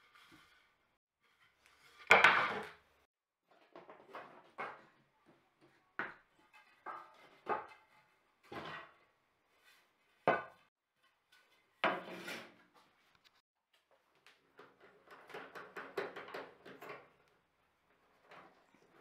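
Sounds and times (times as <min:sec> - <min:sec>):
wooden boards knocking and clattering: 0:02.1 - 0:02.8.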